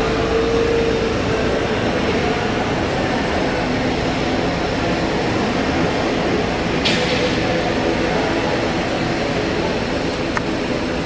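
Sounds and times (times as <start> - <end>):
jet engines running: 0.0 - 11.0.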